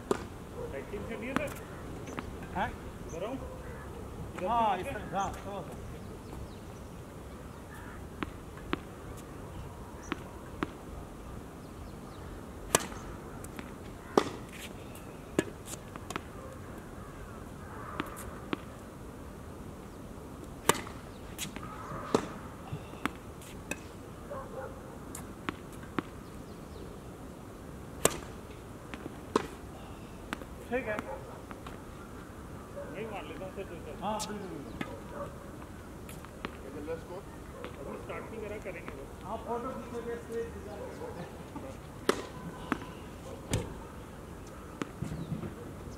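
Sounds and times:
tennis balls bouncing on hard court: 0:00.0 - 0:00.3, 0:01.2 - 0:02.4, 0:07.8 - 0:09.0, 0:10.1 - 0:10.8, 0:12.7 - 0:14.7, 0:18.0 - 0:18.7, 0:20.6 - 0:23.9, 0:28.0 - 0:29.6, 0:41.6 - 0:42.9
tennis balls struck by rackets: 0:00.0 - 0:02.6, 0:07.6 - 0:09.4, 0:10.0 - 0:10.8, 0:12.6 - 0:16.4, 0:17.7 - 0:18.8, 0:20.4 - 0:24.0, 0:25.1 - 0:26.2, 0:27.9 - 0:31.9, 0:41.6 - 0:43.8, 0:44.4 - 0:45.6.

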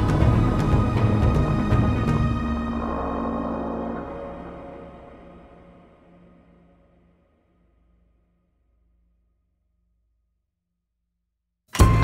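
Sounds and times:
background music with steady beat: 0:00.0 - 0:05.5, 0:11.7 - 0:12.0.

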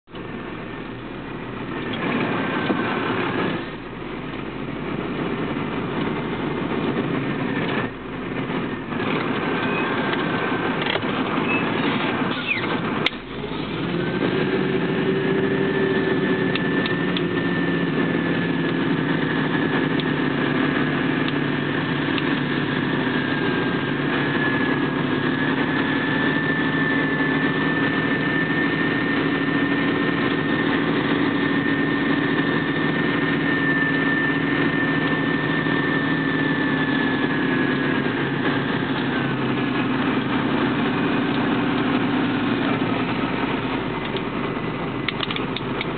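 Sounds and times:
road noise: 0:00.0 - 0:45.9
vehicle engine running: 0:00.0 - 0:45.9
steady high whine: 0:00.1 - 0:45.9
sharp click: 0:45.1 - 0:45.9.

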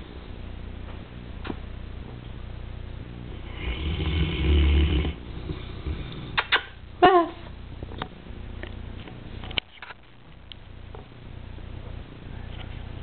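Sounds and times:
dog snoring: 0:03.3 - 0:06.4
dog snorting: 0:03.4 - 0:06.6.

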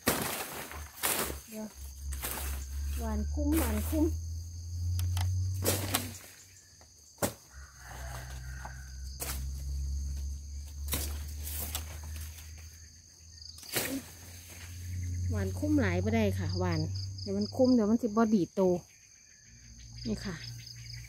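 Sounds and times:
footsteps in undergrowth: 0:00.0 - 0:04.2, 0:05.5 - 0:13.0
snaps in wet undergrowth: 0:00.0 - 0:04.2, 0:04.8 - 0:07.6, 0:08.2 - 0:12.7, 0:13.5 - 0:14.8
insects chirring: 0:00.0 - 0:21.0.

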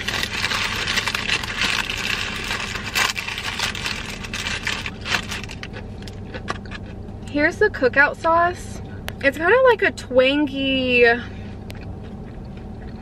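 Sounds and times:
paper bag crinkling: 0:00.0 - 0:05.9
air conditioning hum: 0:00.0 - 0:13.0.

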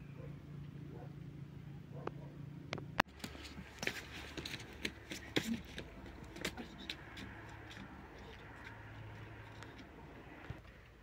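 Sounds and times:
low steady hum: 0:00.0 - 0:11.0
footsteps crunching on stony path: 0:03.1 - 0:10.0.

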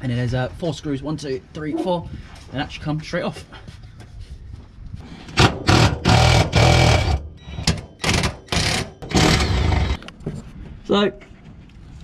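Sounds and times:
cordless power tool bursts: 0:05.4 - 0:10.0.

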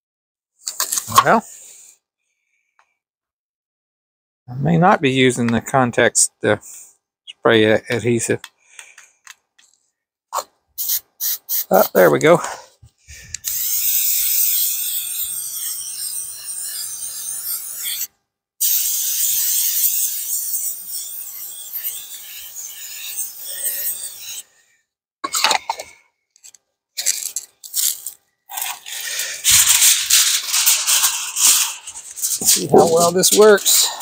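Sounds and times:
aerosol can spraying: 0:10.8 - 0:12.0, 0:13.4 - 0:15.1.

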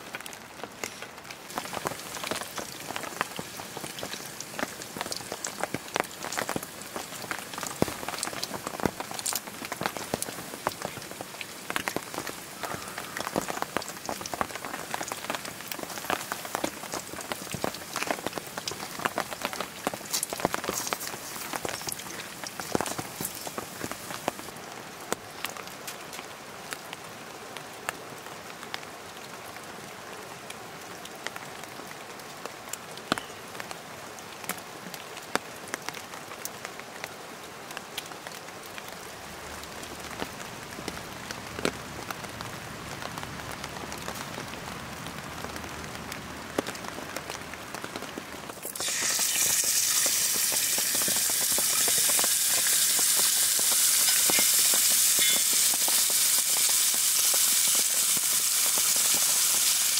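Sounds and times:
steady rain: 0:00.0 - 0:59.9
pork sizzling in skillet: 0:00.8 - 0:11.1, 0:12.6 - 0:24.5, 0:48.5 - 0:59.9.

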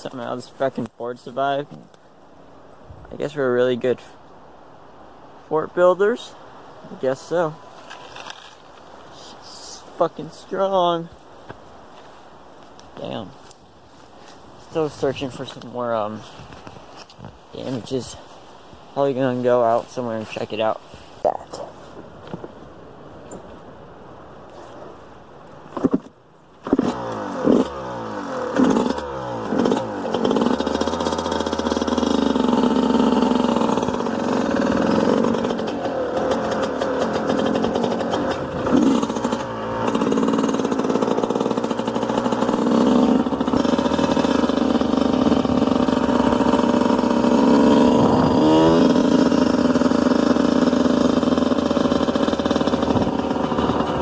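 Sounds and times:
dirt bike engine revving: 0:26.6 - 0:54.0.

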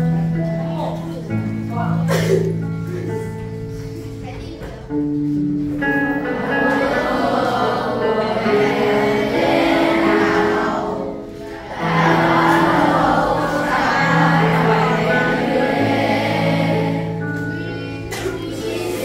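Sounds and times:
karaoke backing track: 0:00.0 - 0:19.0
children singing together: 0:06.0 - 0:19.0.

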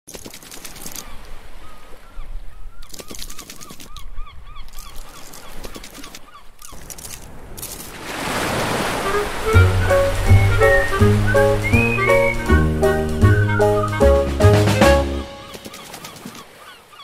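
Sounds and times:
music with bass line: 0:09.6 - 0:15.3.

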